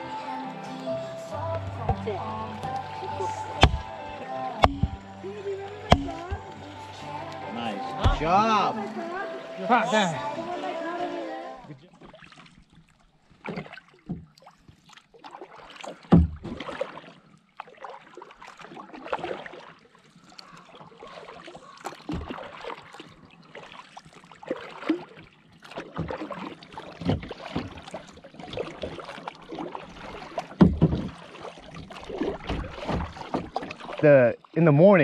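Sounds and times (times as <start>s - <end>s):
paddle splashing water: 0.0s - 35.0s
dull thumps: 3.5s - 5.1s, 5.8s - 6.6s, 8.0s - 8.4s, 30.6s - 31.2s.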